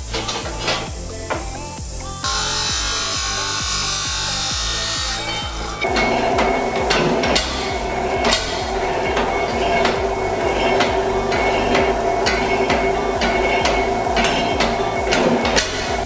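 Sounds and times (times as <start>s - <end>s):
machine humming: 0.0s - 16.0s
punch press clunking: 5.2s - 16.0s.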